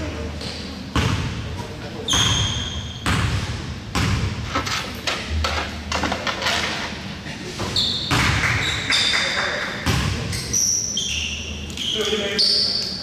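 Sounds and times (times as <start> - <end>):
basketball bouncing on wooden floor: 2.2 - 4.3.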